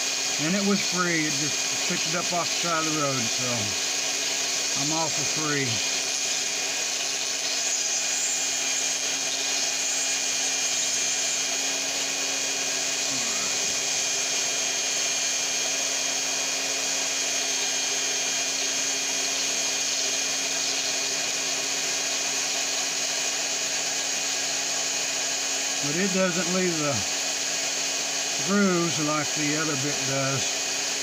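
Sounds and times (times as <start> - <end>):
rotary tool grinding stone: 0.0 - 31.0.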